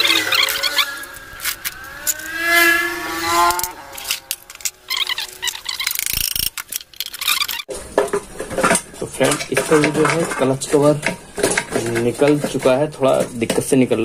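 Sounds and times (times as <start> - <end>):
wavering drawn-out tone: 0.0 - 6.3.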